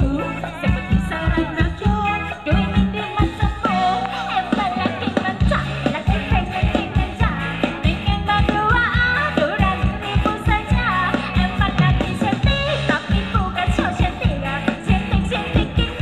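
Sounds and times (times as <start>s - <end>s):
fast bass drum beat: 0.0s - 16.0s
live dance band music: 0.0s - 16.0s
person singing: 0.0s - 16.0s.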